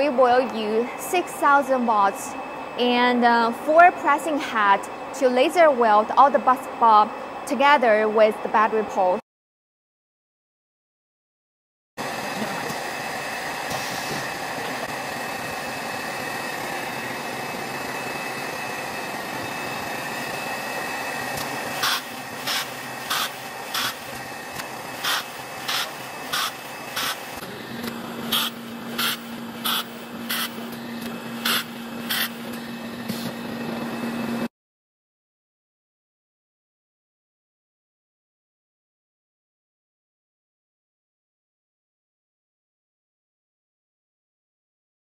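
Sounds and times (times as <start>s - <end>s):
welding machine whine: 12.0s - 34.5s
laser welding hissing bursts: 21.8s - 27.4s, 28.3s - 30.7s, 31.4s - 32.5s.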